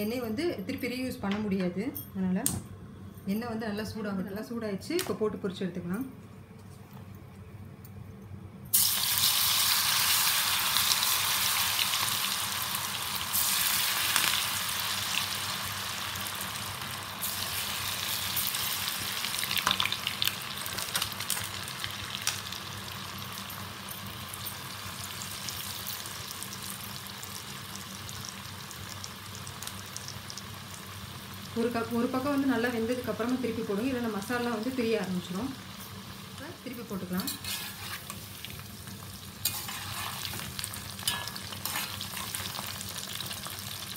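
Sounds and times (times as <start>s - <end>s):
food deep-frying in hot oil: 8.7s - 43.9s.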